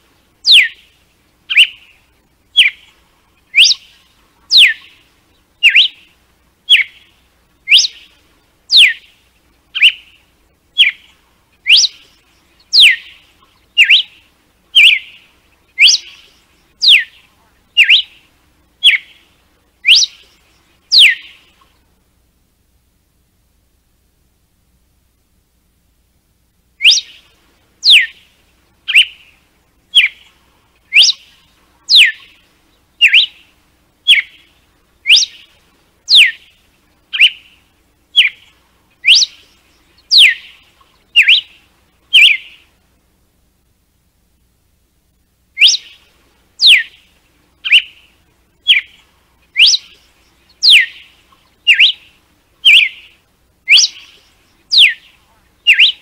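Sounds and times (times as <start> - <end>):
bird singing whistled notes: 0.4 - 21.6, 26.8 - 42.7, 45.6 - 56.0.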